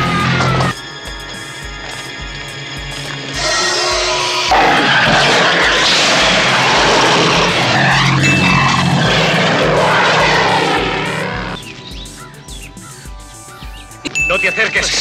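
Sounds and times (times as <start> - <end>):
high steady tone: 0.0 - 12.4
low beating pulse: 0.0 - 14.0
dense rushing noise: 3.4 - 12.2.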